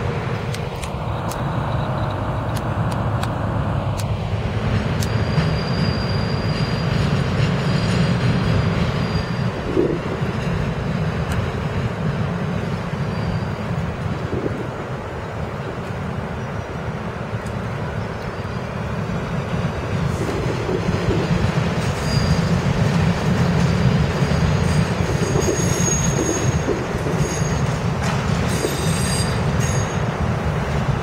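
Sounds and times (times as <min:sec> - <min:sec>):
train wheels rumbling on rail: 0:00.0 - 0:31.0
sharp clicks: 0:00.5 - 0:04.2
thin high squeal: 0:05.1 - 0:07.0, 0:07.6 - 0:09.6, 0:13.0 - 0:13.7, 0:21.9 - 0:22.6, 0:28.5 - 0:30.0.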